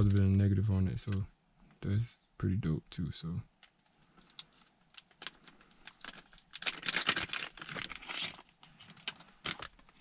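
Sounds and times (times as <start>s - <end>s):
plastic bag crinkling: 3.6s - 10.0s.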